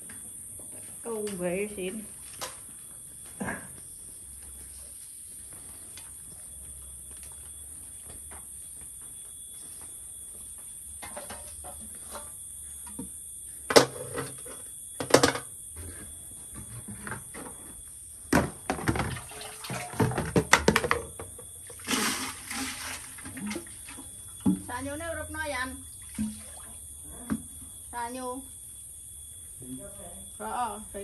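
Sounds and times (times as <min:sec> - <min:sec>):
water pouring and splashing: 0:18.9 - 0:20.4, 0:21.7 - 0:24.6, 0:26.0 - 0:26.8.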